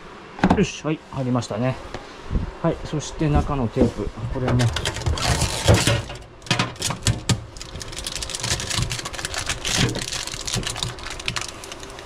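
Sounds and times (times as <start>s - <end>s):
tape peeling rustles: 4.6s - 12.0s.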